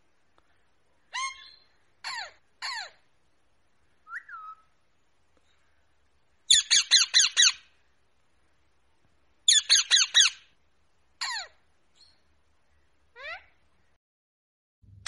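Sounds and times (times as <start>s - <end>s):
parakeet screeching: 1.1s - 3.0s, 6.5s - 7.6s.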